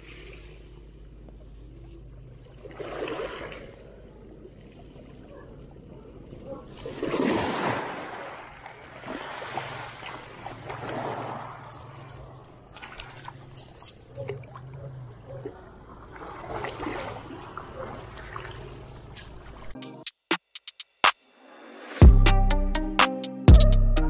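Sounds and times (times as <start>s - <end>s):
waves washing onto pebbles: 6.9s - 13.4s.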